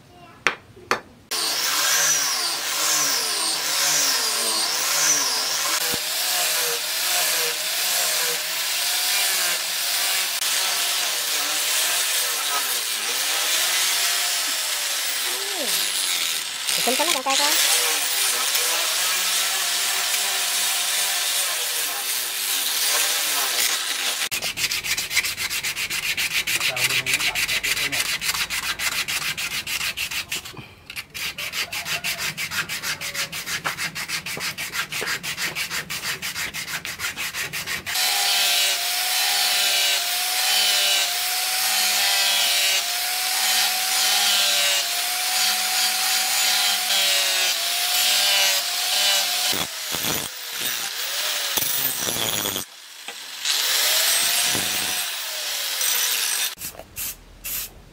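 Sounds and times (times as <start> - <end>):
angle grinder whining: 1.3 - 25.4, 37.9 - 56.6
hand sanding strokes: 1.3 - 50.9
grinder grinding steel: 1.3 - 56.8.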